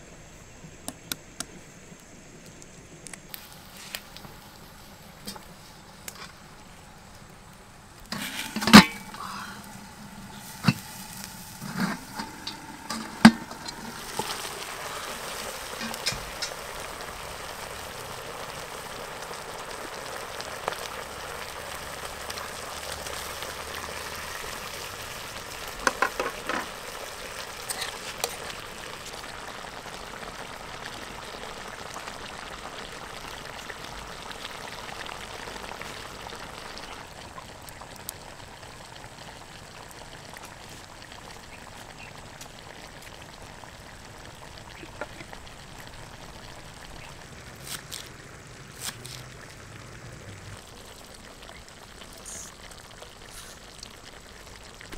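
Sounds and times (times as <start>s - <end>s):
meat sizzling in bubbling fat: 2.0s - 54.9s
steel bowl clanking on wok: 8.1s - 9.2s, 10.4s - 14.5s.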